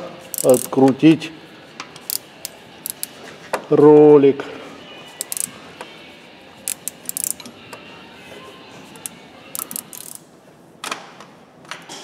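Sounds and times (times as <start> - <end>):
ratchet wrench clicking: 0.3 - 0.8, 2.0 - 3.2, 5.2 - 5.5, 6.6 - 7.5, 9.0 - 10.2.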